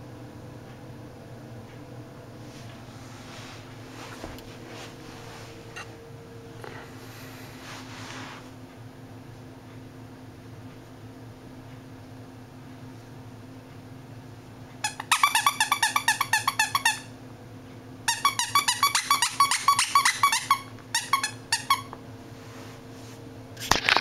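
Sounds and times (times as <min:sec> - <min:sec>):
squeaky toy squeaking: 0:14.9 - 0:17.1, 0:18.1 - 0:21.9.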